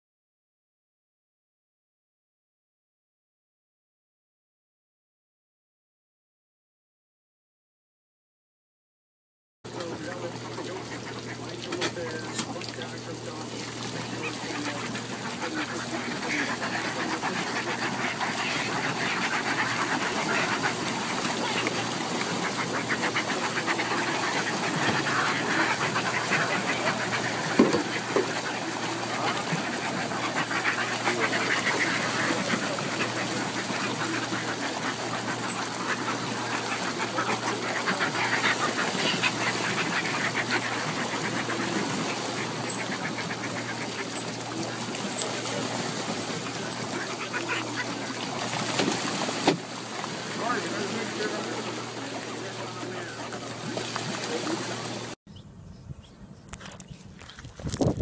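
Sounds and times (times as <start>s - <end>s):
seabirds cackling calls: 9.7s - 55.2s.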